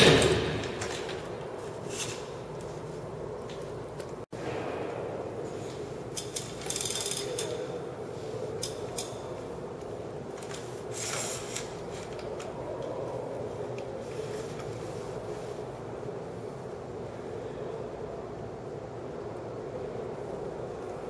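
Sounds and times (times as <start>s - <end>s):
steady low hum: 0.0s - 21.0s
bicycle chain clicking and rattling: 6.1s - 7.8s.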